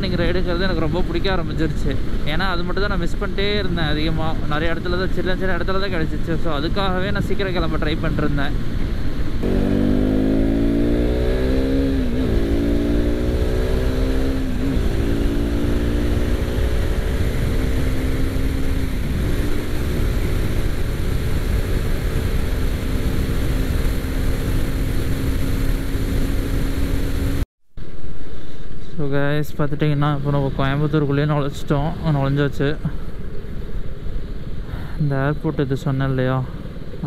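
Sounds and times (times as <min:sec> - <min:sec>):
wind rush over microphone: 0:03.3 - 0:27.4
motorcycle engine running: 0:09.4 - 0:27.4.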